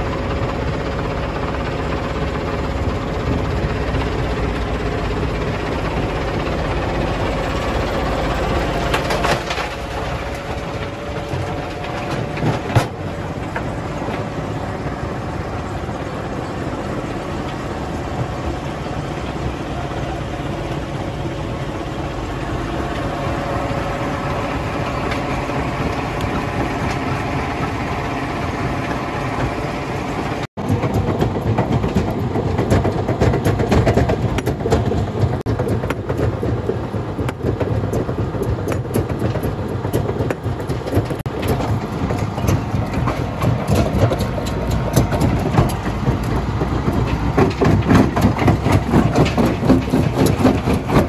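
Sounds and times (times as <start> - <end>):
wheel loader engine running: 0.0 - 51.0
jaw crusher crushing rock: 5.6 - 14.3, 30.6 - 51.0.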